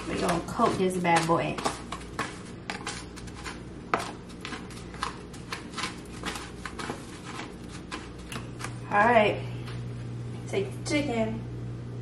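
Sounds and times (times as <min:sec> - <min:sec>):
breadcrumbs crunching and rustling: 0:00.0 - 0:09.1.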